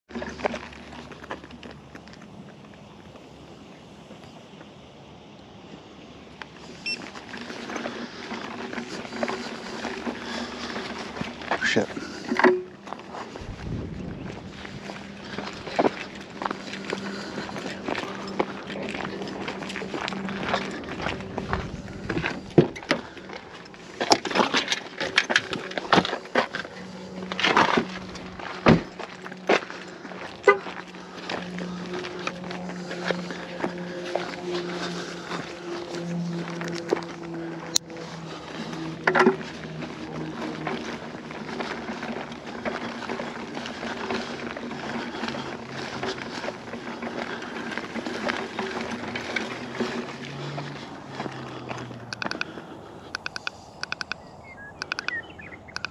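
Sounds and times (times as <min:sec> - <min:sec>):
tyre noise on asphalt: 0:00.0 - 0:55.9
electric scooter motor hum: 0:00.1 - 0:55.9
small clicks and rattles: 0:14.5 - 0:54.2, 0:54.8 - 0:55.9
scooter knocking over bumps: 0:27.3 - 0:29.7.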